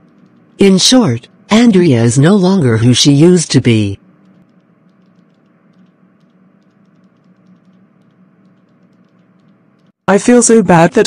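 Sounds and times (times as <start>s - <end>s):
faint steady hum: 0.0s - 11.0s.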